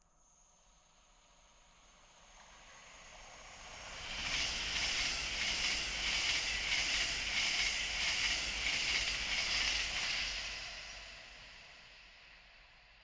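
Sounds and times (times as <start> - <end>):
high-speed train passing: 3.5 - 11.8.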